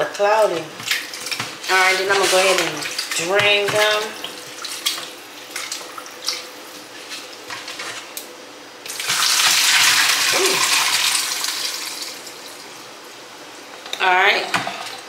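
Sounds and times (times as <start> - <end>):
water pouring into sink: 8.9 - 12.4.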